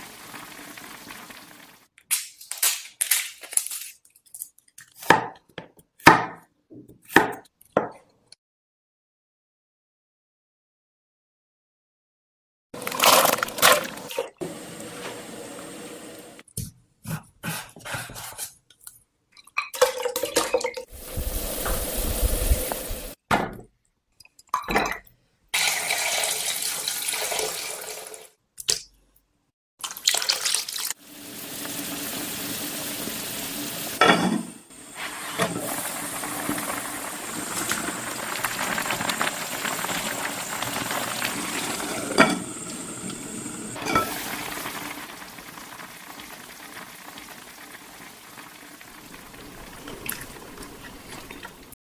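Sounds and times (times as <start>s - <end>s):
pot boiling with bubbling: 20.8s - 23.2s, 34.7s - 51.8s
pot and utensil clatter: 42.0s - 42.5s, 43.8s - 44.2s.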